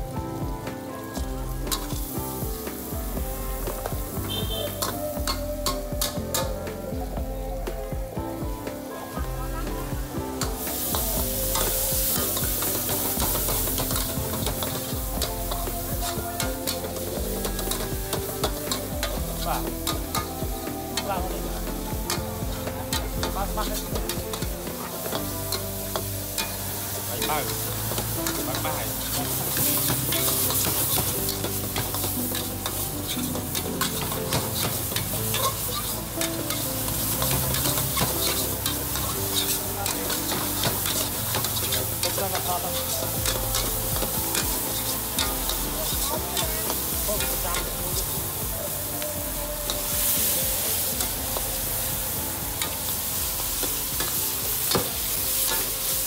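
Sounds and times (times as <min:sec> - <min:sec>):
food sizzling in hot oil: 0:00.0 - 0:56.0
metal ladle scraping a wok: 0:23.7 - 0:46.0.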